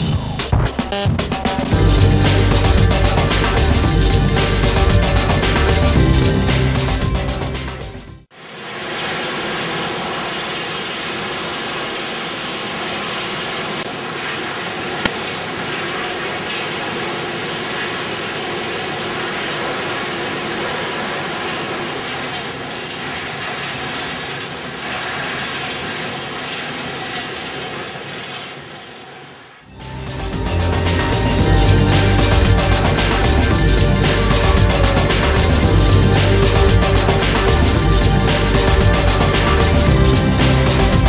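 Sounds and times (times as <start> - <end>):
conveyor machinery running: 8.4 - 41.0.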